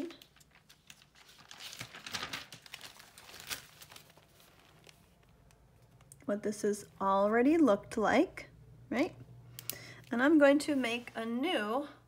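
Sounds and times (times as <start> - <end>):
paper rustling and crinkling: 0.0 - 6.0.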